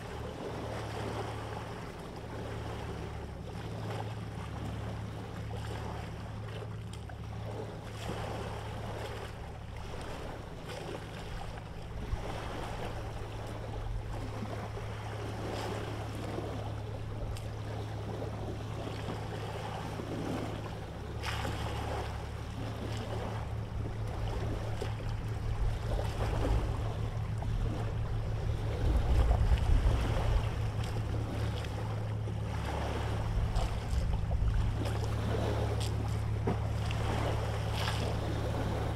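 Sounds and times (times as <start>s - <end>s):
boat engine drone: 0.0s - 38.9s
wind: 0.0s - 38.9s
water rushing: 12.0s - 38.9s.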